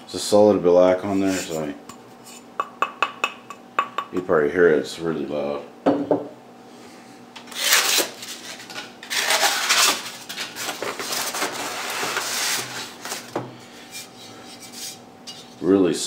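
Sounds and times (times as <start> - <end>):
styrofoam squeaking and scraping: 7.5 - 13.3.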